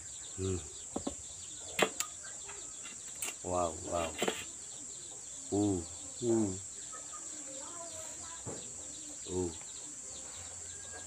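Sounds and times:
low voiced sounds: 0.4 - 0.8, 5.5 - 6.6, 9.2 - 9.6.

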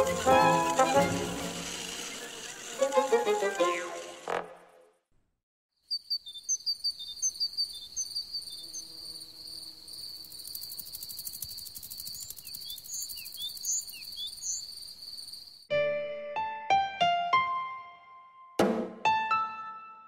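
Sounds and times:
crickets trilling: 5.9 - 15.7.

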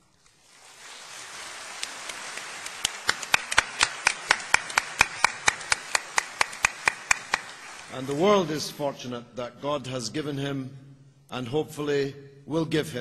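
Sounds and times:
audience applauding: 0.4 - 8.6
sharp loud claps close by: 1.9 - 7.9.

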